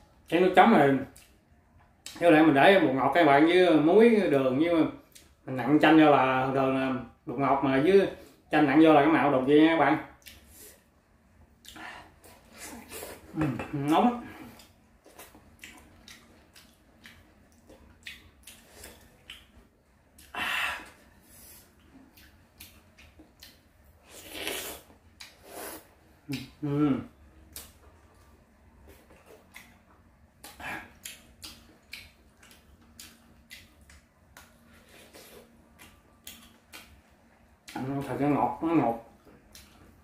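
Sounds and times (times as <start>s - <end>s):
wet mouth clicks and lip smacks: 35.8s - 37.0s.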